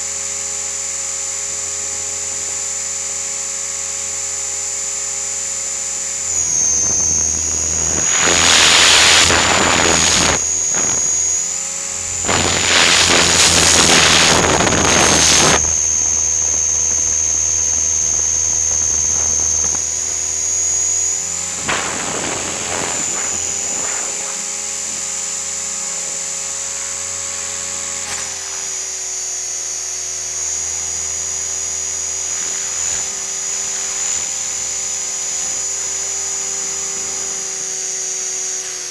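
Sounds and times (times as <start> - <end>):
rc helicopter motor whine: 0.0 - 38.9
rushing air noise: 6.4 - 20.6, 21.3 - 25.0.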